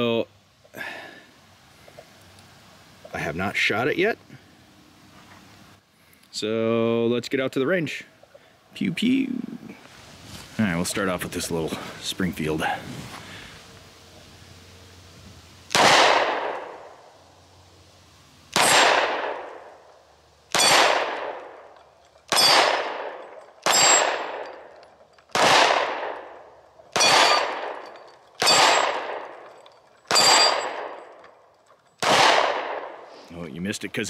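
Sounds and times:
pistol shots: 15.7 - 16.8, 18.5 - 19.7, 20.5 - 21.7, 22.3 - 24.7, 25.3 - 29.4, 30.1 - 31.1, 32.0 - 33.0
steel targets ringing: 20.5 - 32.2.

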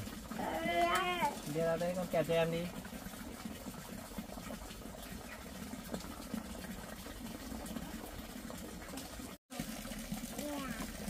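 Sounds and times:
water trickling: 0.0 - 11.0.

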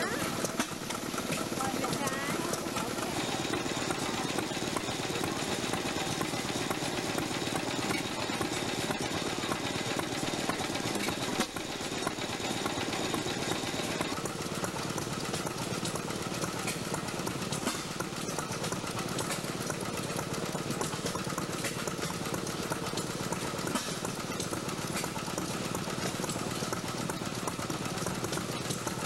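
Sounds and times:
stationary gas engine clattering: 0.0 - 29.0.

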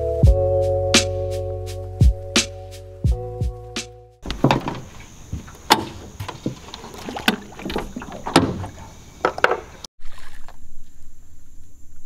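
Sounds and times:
knocks and thumps on boat deck: 4.2 - 9.8
high insect drone: 4.2 - 9.9.

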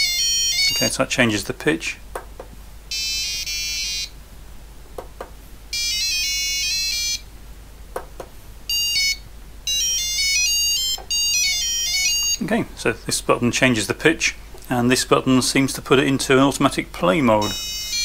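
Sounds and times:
buzzer playing electronic notes: 0.0 - 0.8, 2.9 - 4.2, 5.7 - 7.3, 8.7 - 12.4, 17.4 - 18.0.

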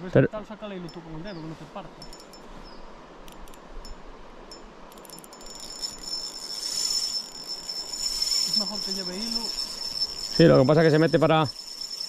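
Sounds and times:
insect chirping and trilling: 2.0 - 12.0.

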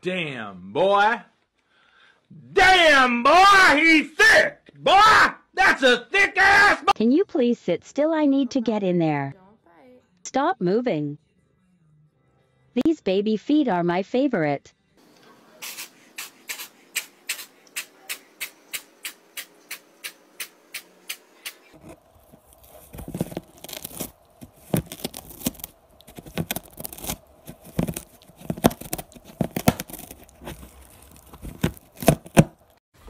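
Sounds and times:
cat gnawing cardboard: 20.4 - 32.8
cardboard tearing and scraping: 21.7 - 32.8.

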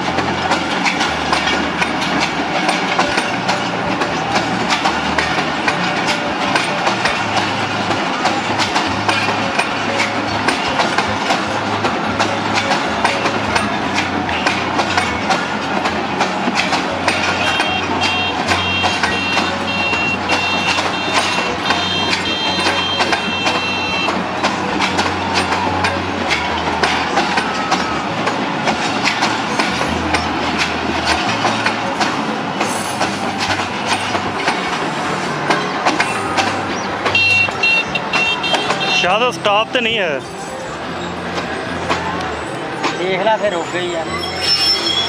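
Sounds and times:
street noise: 0.0 - 45.0
train wheels clattering on rails: 0.0 - 45.0
high beeping: 17.4 - 24.2.

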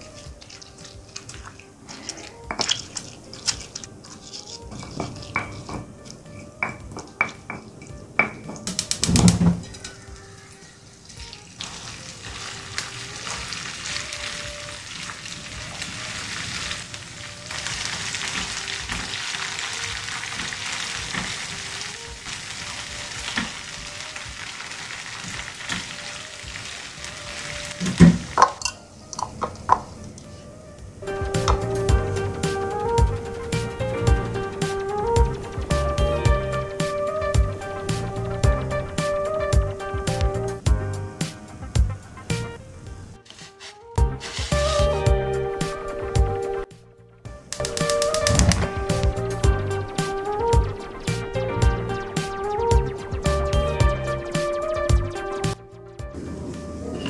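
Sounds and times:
spatula scraping a pan: 0.0 - 6.5, 43.3 - 44.9
sambal sizzling in a frying pan: 8.8 - 28.7.

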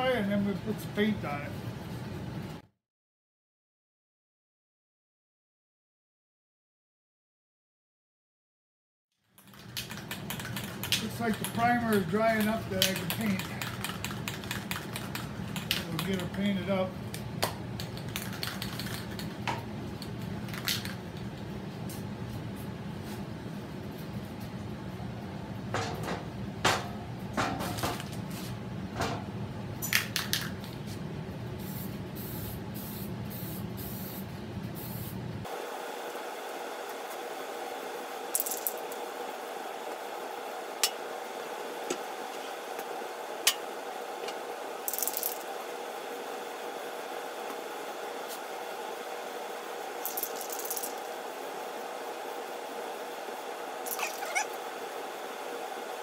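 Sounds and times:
spray can hissing: 31.6 - 34.2.

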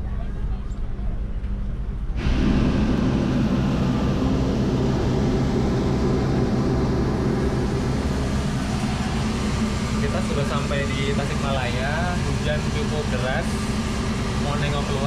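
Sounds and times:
train rumble and engine hum: 0.0 - 15.0.

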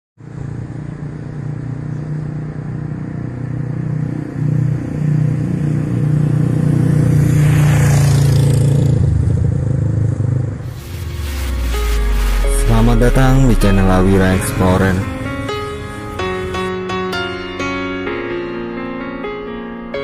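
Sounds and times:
motorcycle passing close: 0.2 - 17.1
motorcycle engine running: 8.0 - 12.4.

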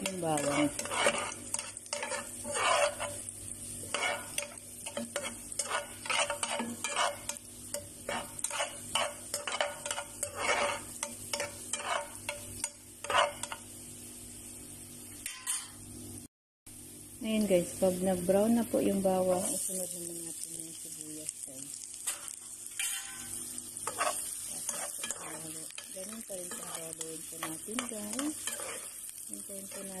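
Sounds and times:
metal spoon scraping pan: 0.0 - 13.6, 22.1 - 30.0
garlic sizzling in oil: 0.0 - 15.8, 16.8 - 30.0.

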